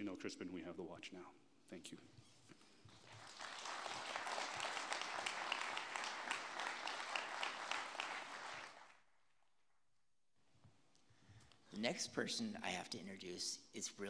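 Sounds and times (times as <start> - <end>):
audience applauding: 2.9 - 9.0.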